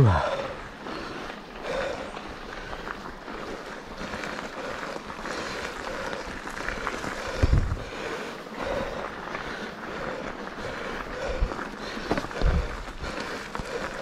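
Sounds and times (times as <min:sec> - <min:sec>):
wind buffeting microphone: 0:07.2 - 0:08.1.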